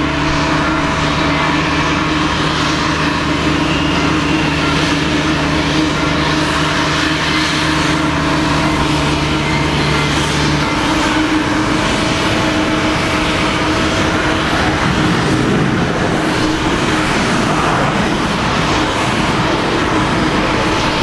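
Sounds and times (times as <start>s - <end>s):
distant jet engine rushing: 0.0s - 21.0s
low steady hum: 0.0s - 21.0s.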